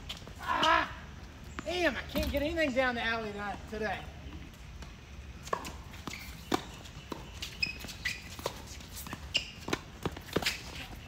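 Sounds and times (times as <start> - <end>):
footsteps on hard court: 4.8 - 11.0.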